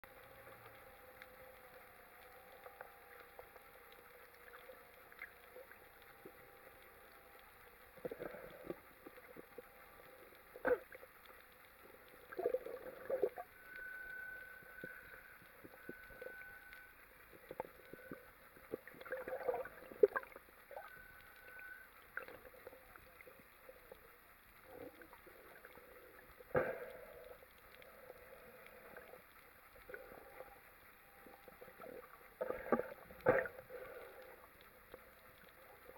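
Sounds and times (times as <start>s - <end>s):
faint steady hum: 0.0s - 35.9s
underwater bubbling gurgle: 0.1s - 35.9s
thin high tone: 13.1s - 17.0s.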